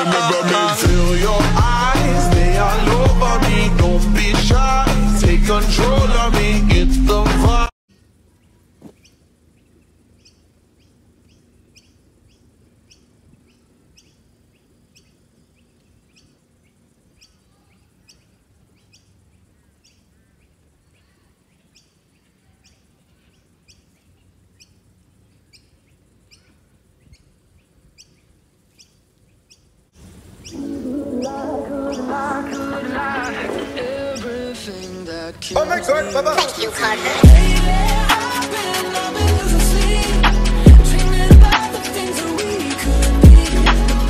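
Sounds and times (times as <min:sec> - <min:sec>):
music: 0:00.0 - 0:07.7, 0:35.6 - 0:44.0
bird chirping: 0:07.9 - 0:36.6.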